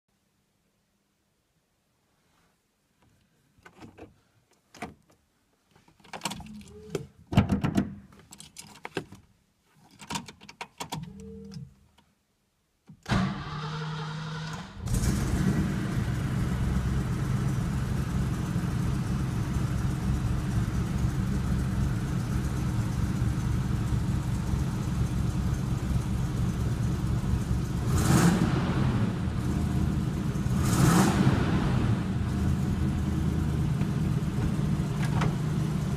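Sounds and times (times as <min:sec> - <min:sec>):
engine revving: 0:13.2 - 0:19.3, 0:27.4 - 0:34.3
car engine idling: 0:14.8 - 0:35.9.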